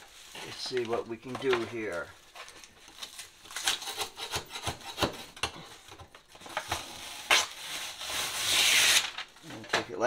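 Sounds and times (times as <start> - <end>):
metal scraper scraping wallpaper: 3.6 - 5.6.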